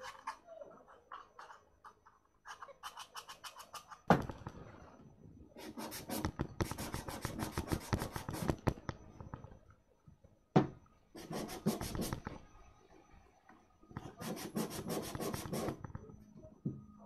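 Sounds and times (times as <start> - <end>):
sandpaper rubbing on wood: 11.2 - 12.2, 14.2 - 15.8.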